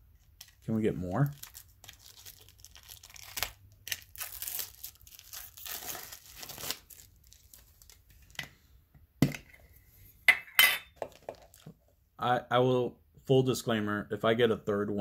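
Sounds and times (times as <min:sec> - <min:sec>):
plastic wrapping crinkling and tearing: 0:00.4 - 0:08.4.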